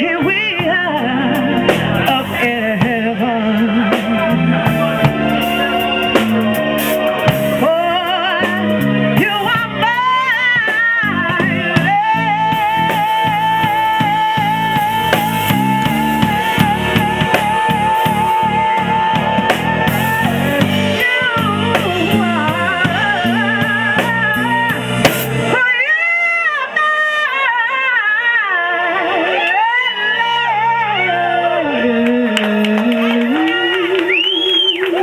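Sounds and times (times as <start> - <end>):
drum kit: 0.0 - 25.9
electric bass guitar: 0.0 - 26.8
woman singing with vibrato: 0.0 - 35.0.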